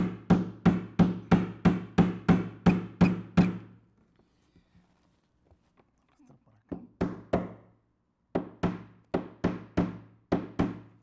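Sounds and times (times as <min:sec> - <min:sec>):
hammer driving nail into wood: 0:00.0 - 0:03.7, 0:08.4 - 0:11.0.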